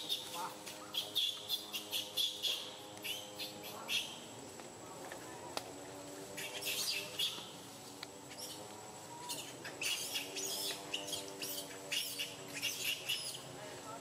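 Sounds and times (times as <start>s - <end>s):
high quick animal chirping: 0.0s - 4.2s, 9.2s - 13.4s.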